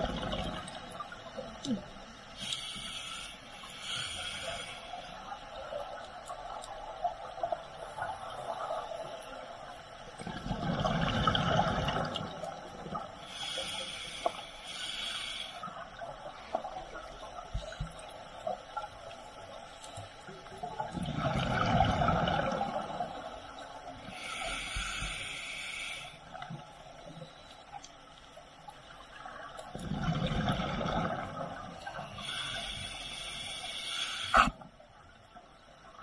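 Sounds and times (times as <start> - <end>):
regulator inhalation hiss: 2.4 - 5.3, 13.2 - 15.8, 24.0 - 26.2, 32.0 - 34.5
faint clicks: 5.4 - 7.5, 26.3 - 29.9
bubbling underwater exhale: 10.2 - 13.0, 29.7 - 32.0.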